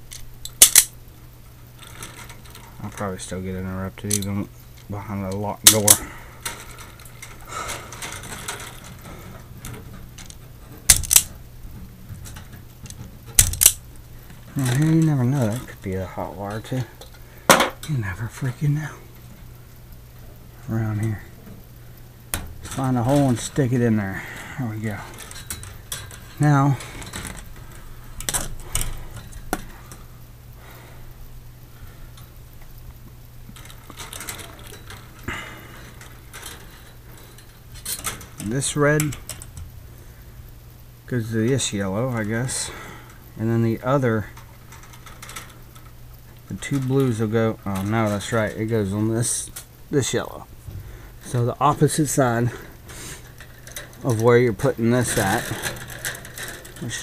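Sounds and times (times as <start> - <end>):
faint handling noise: 0.0 - 57.0
steady low hum: 0.0 - 57.0
wire stripper clicks: 0.1 - 1.0, 4.1 - 11.3, 12.2 - 13.9.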